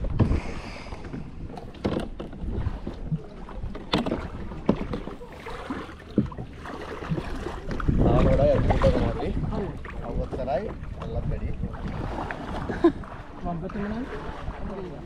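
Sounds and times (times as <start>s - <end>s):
wind on microphone: 0.0s - 1.6s, 7.0s - 15.0s
paddle strokes splashing: 0.1s - 15.0s.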